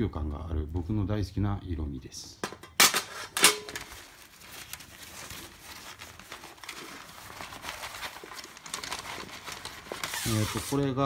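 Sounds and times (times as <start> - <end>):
fabric bag rustling and crinkling: 3.7 - 11.0.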